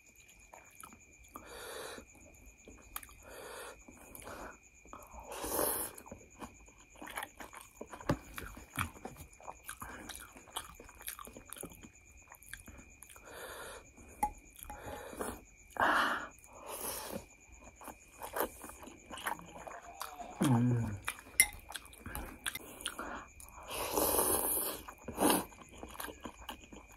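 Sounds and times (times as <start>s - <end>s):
wet chewing and smacking: 0.0s - 1.4s, 2.0s - 5.1s, 5.9s - 15.7s, 17.2s - 23.7s, 24.6s - 26.9s.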